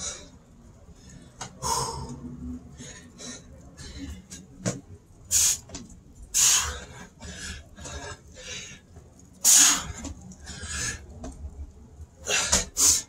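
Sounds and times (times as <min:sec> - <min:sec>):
man breathing hard: 0:00.0 - 0:04.4, 0:06.3 - 0:11.2, 0:12.2 - 0:13.0.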